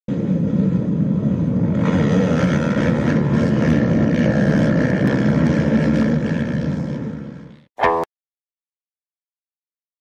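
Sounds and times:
engine rumbling: 0:00.1 - 0:08.0.

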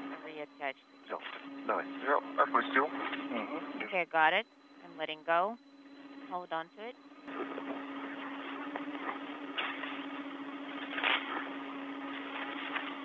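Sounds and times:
low hum: 0:00.0 - 0:13.0
steady radio hiss: 0:01.1 - 0:04.0, 0:07.3 - 0:13.0
bursts of static: 0:06.2 - 0:13.0.

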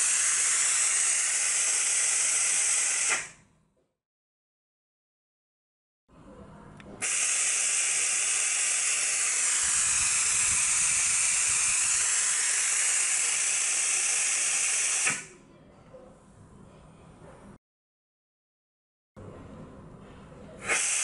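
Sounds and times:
compressed air hissing: 0:00.0 - 0:03.4, 0:07.0 - 0:15.3, 0:20.6 - 0:21.0
valve click: 0:07.0 - 0:15.3.

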